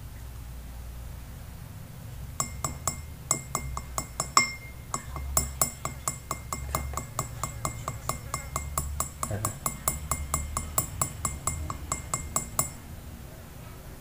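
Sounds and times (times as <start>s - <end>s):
stick clinking on glass rim: 2.4s - 12.8s.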